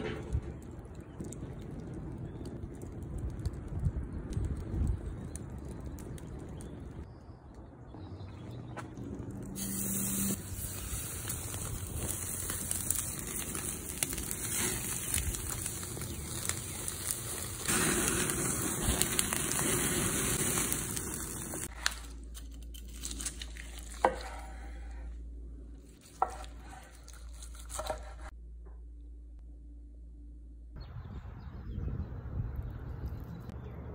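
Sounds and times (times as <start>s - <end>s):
steaks sizzling over charcoal: 9.5s - 22.0s.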